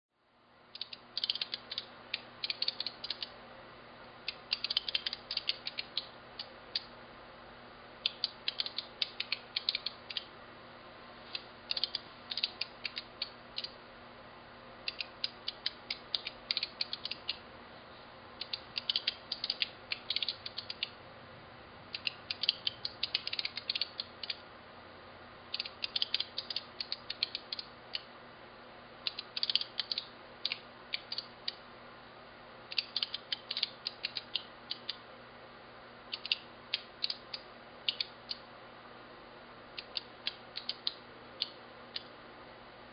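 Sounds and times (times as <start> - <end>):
flip-segment display clicking: 4.3 - 6.9, 8.0 - 10.3, 11.3 - 13.8, 18.4 - 21.0, 36.1 - 38.4.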